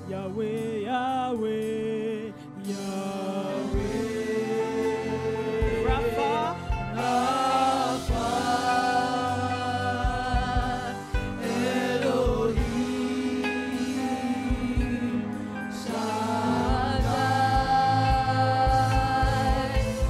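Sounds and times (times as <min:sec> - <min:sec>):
choir singing with instruments: 0:00.0 - 0:20.0
low drum thumps: 0:05.6 - 0:07.2, 0:10.0 - 0:11.5.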